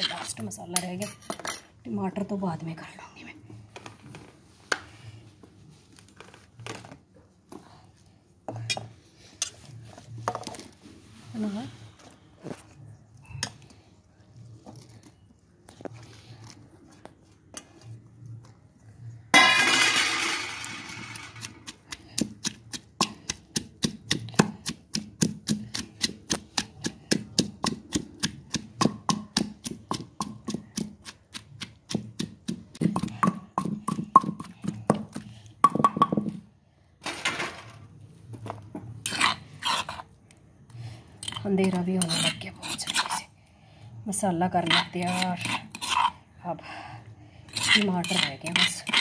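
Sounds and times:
spoon scraping against mortar: 0.0s - 1.8s, 38.9s - 40.2s, 41.1s - 43.3s, 44.4s - 46.3s, 47.4s - 49.0s
pestle thudding in stone mortar: 21.1s - 36.5s.

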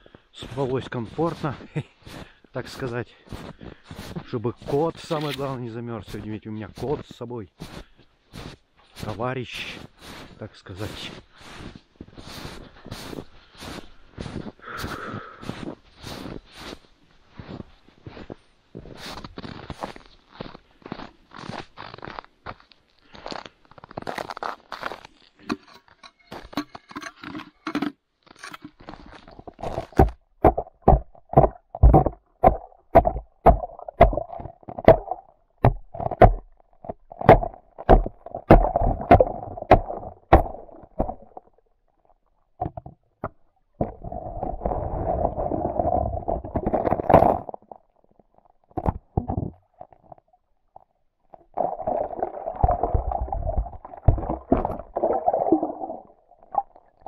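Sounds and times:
bucket sloshing and gurgling: 28.5s - 35.3s, 35.9s - 41.6s, 43.8s - 48.0s, 51.3s - 57.0s.

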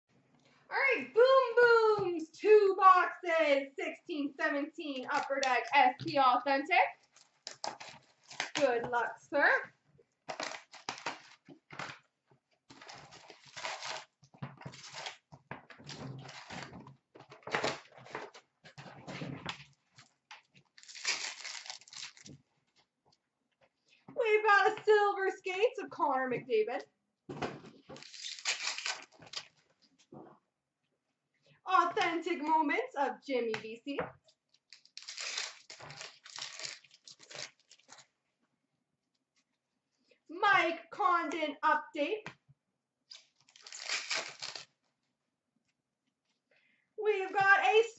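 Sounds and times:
foil wrapper crinkling and tearing: 7.0s - 8.7s, 10.3s - 12.0s, 12.7s - 15.3s, 15.9s - 16.7s, 19.9s - 22.4s, 27.9s - 29.6s, 34.6s - 38.1s, 43.1s - 44.8s
cardboard and paper rustling: 12.7s - 18.5s, 19.1s - 22.4s, 27.6s - 29.7s, 34.8s - 38.0s, 43.2s - 44.7s.

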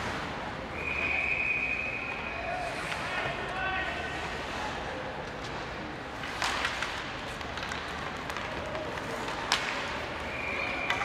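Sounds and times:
hockey sticks knocking puck: 5.2s - 11.0s.

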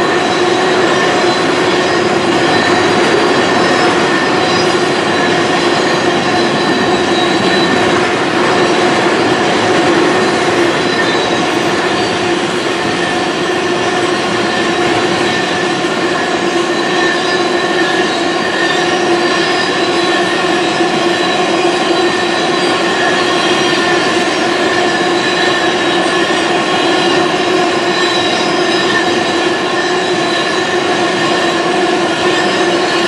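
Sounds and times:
steel wheels rumbling on rail: 0.0s - 33.0s
train wheels whining: 0.0s - 33.0s.

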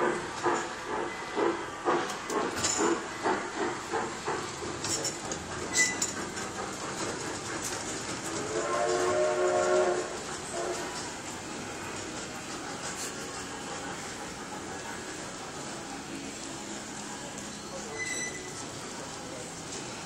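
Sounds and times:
steam locomotive chugging: 0.0s - 20.0s
steam whistle: 8.4s - 11.0s.

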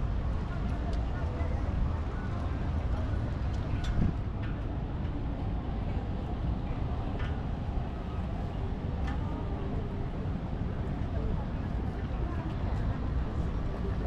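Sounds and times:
faint distant voices: 0.0s - 14.0s
low rumble of city ambience: 0.0s - 14.0s.

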